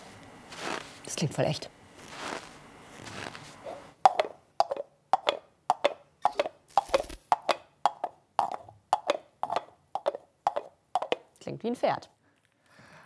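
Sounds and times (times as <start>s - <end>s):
coconut shells clip-clopping: 4.1s - 11.3s.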